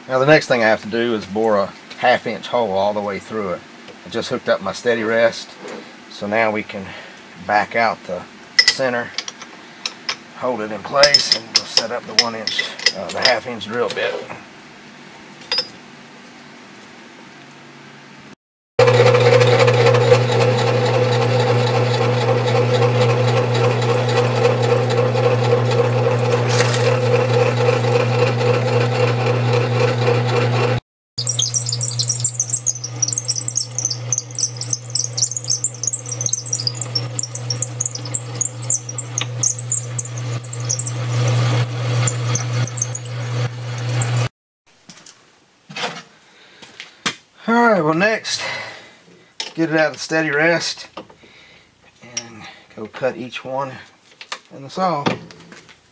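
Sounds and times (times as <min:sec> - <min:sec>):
lathe humming: 0:18.8 - 0:44.3
drill bit squealing chatter: 0:31.2 - 0:44.3.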